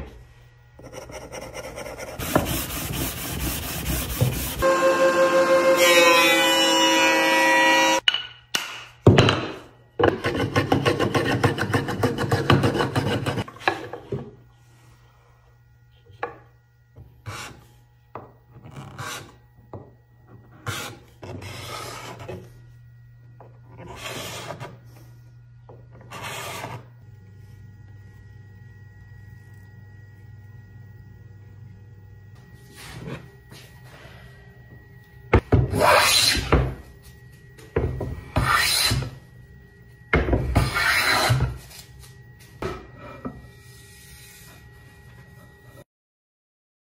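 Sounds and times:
plane rasping on wood: 0.8s - 4.6s, 38.4s - 39.0s.

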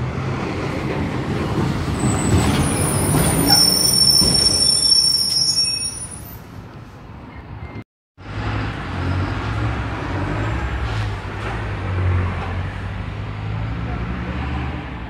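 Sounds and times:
high-pitched squeals: 2.0s - 6.5s.

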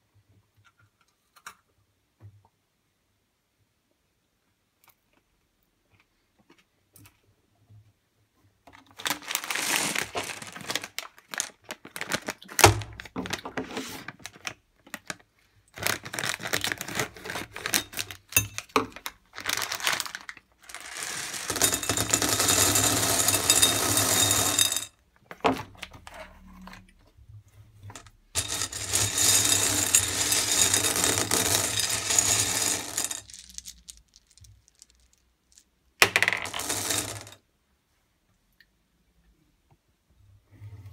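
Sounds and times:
candy rattling in glass bowl: 9.0s - 12.5s, 15.8s - 24.9s, 28.4s - 37.4s.

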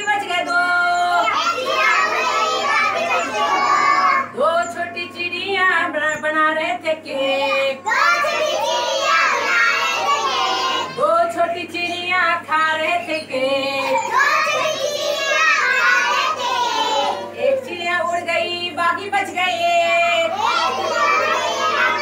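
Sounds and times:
children singing in unison: 1.2s - 4.3s, 7.6s - 11.0s, 14.0s - 17.3s, 20.3s - 22.0s.

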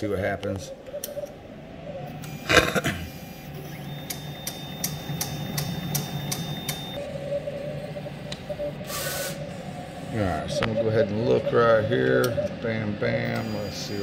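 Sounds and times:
thin high whine: 1.2s - 14.0s
printer carriage motor humming: 2.1s - 14.0s
regular ticks: 4.0s - 7.0s.

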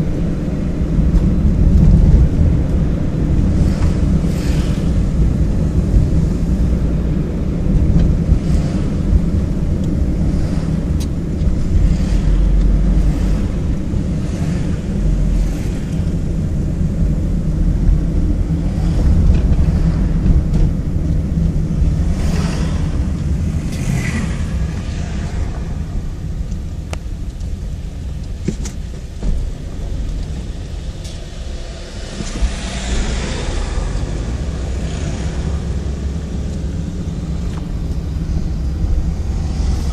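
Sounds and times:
car road noise rumble: 0.0s - 39.9s
oncoming vehicles passing: 0.0s - 39.9s.

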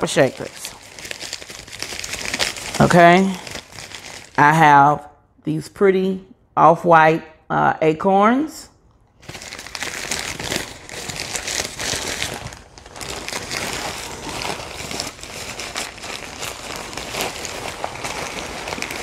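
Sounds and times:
wrapping crinkling and rustling: 0.0s - 4.6s, 9.2s - 19.0s.

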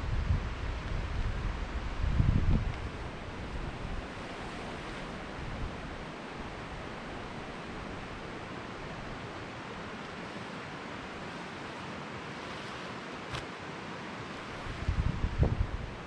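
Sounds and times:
wind buffeting microphone: 0.0s - 9.2s, 14.4s - 16.0s
wind rushing through trees: 0.0s - 16.0s.

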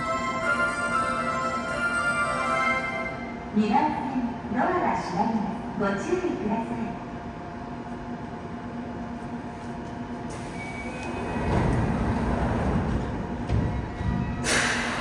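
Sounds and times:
stopped train hum: 0.0s - 15.0s
train doors sliding shut: 10.3s - 15.0s.

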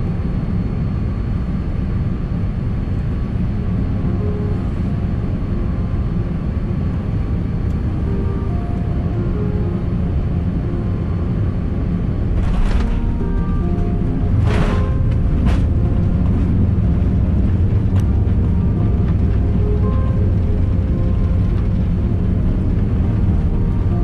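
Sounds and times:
airplane cabin engine rumble: 0.0s - 24.0s
soft background music: 0.9s - 24.0s.

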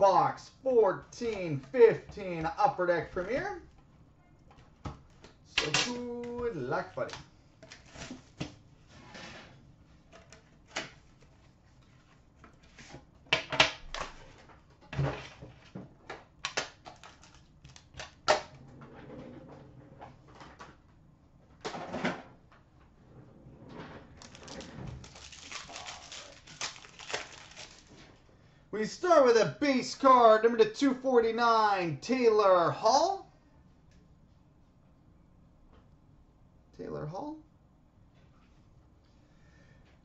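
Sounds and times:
packaging clicks and rustles: 16.4s - 18.3s, 24.2s - 28.1s
wrapper tearing and crinkling: 16.5s - 18.2s, 24.2s - 28.1s.

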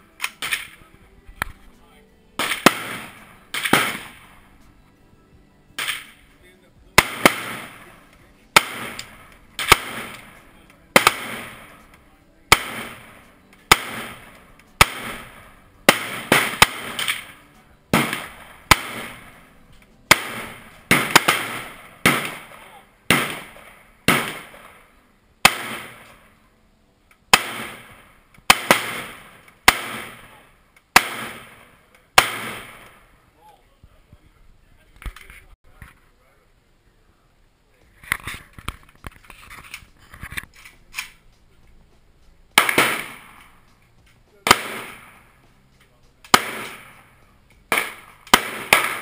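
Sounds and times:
rifle shots with echo: 0.1s - 1.6s, 2.4s - 4.6s, 5.8s - 6.3s, 6.9s - 26.4s, 27.3s - 33.2s, 42.5s - 43.8s, 44.4s - 45.4s, 46.2s - 49.0s.

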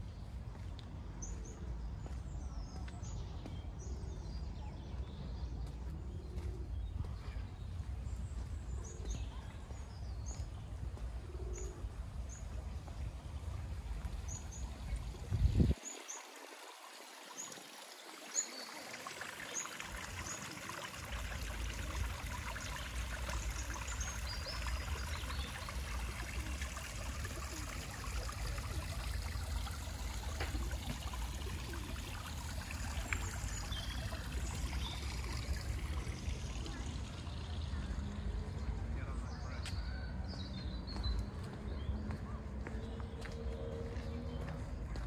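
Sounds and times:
water trickling: 7.6s - 38.9s.

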